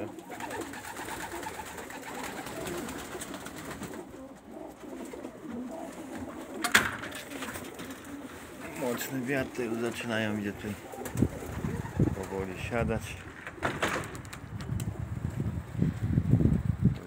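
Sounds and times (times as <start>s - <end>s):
pigeons cooing: 0.0s - 12.8s.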